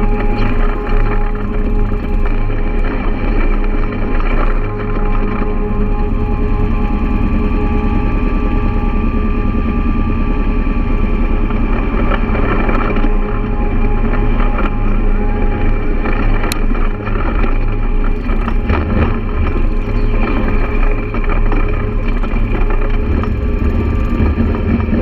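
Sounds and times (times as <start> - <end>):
quad bike engine running: 0.0 - 25.0.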